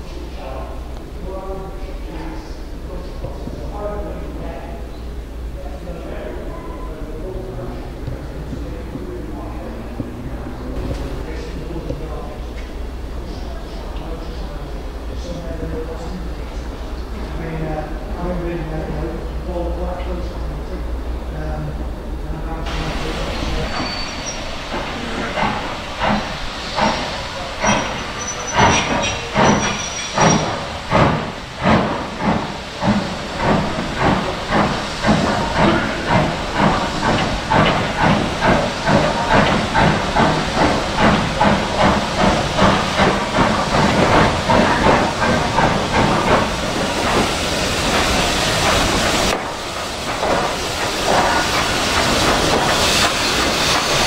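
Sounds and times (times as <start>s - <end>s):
steam locomotive chuffing: 0.0s - 54.0s
escaping steam hiss: 22.2s - 54.0s.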